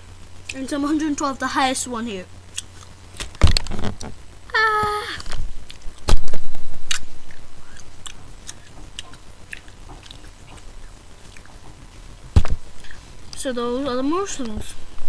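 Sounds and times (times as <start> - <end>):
girl squealing: 4.5 - 5.3.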